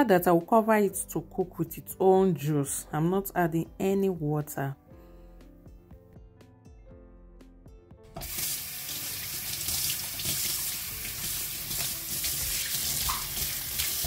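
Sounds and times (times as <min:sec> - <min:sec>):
tap water splashing in sink: 0:08.2 - 0:14.0.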